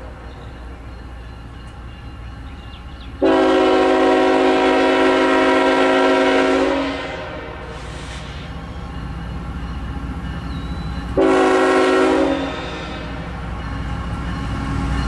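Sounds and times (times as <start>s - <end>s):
train rumbling: 0.0s - 15.0s
locomotive air horn blast: 3.2s - 8.4s, 11.2s - 13.3s.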